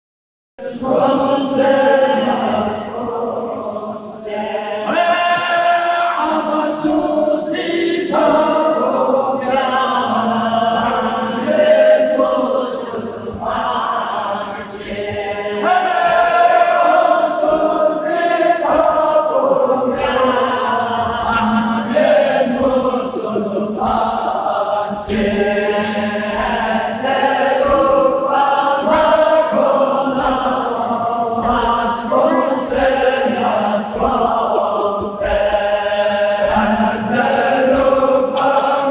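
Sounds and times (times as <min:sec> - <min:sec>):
man chanting unaccompanied: 0:31.4 - 0:36.3.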